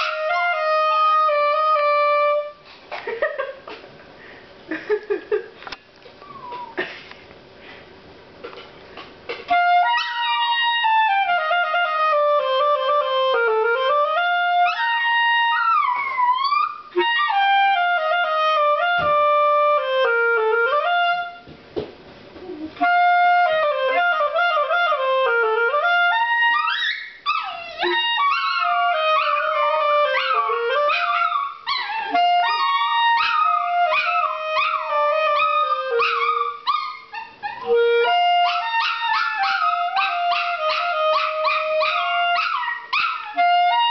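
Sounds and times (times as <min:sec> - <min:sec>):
clarinet slow melody: 0:00.0 - 0:02.6, 0:09.3 - 0:21.5, 0:22.5 - 0:43.9
dog howling: 0:26.5 - 0:43.9.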